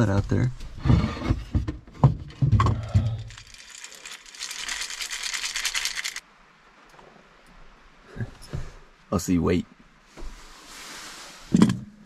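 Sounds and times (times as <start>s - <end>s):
dry kibble rattling in bowl: 3.2s - 6.2s.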